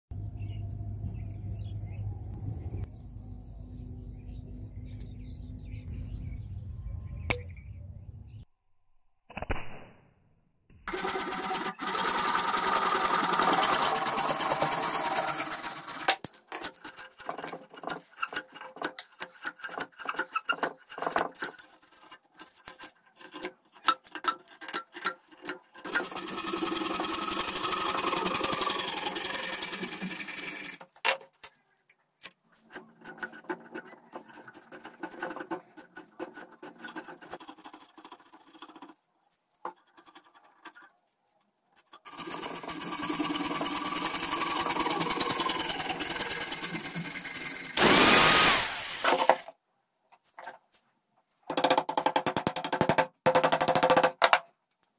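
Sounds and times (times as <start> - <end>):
knife shaving bamboo: 10.9 - 30.8, 32.5 - 39.0, 39.7 - 41.0
saw blade cutting bamboo: 10.9 - 30.9, 32.6 - 39.0, 41.8 - 49.5
tools scraping and clicking bamboo: 10.9 - 39.0, 39.6 - 41.0, 41.7 - 47.8.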